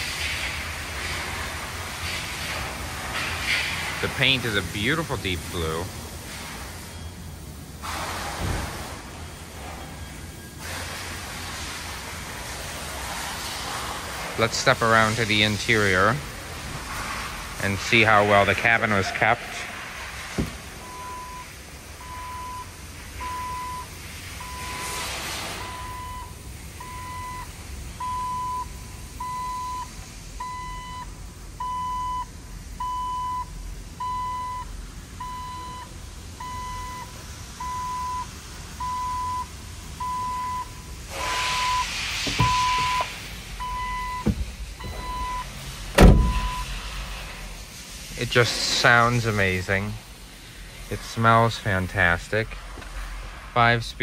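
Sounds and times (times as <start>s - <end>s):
heavy thump: 20.3s - 20.7s, 42.2s - 43.1s, 44.2s - 45.2s, 45.9s - 46.6s
dashboard warning chime beeping: 20.8s - 25.0s, 25.6s - 46.7s.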